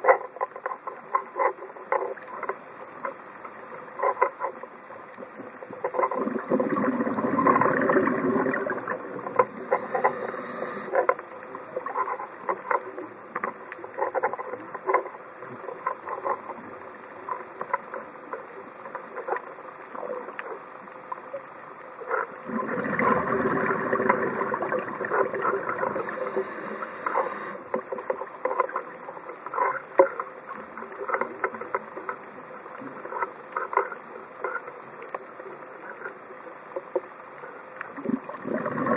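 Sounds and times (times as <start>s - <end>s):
reef crackling and clicking: 0.0s - 38.9s
regulator bubbling exhalation: 6.2s - 9.0s, 22.5s - 27.7s, 38.0s - 38.9s
short high hiss: 9.5s - 11.0s, 26.0s - 27.8s.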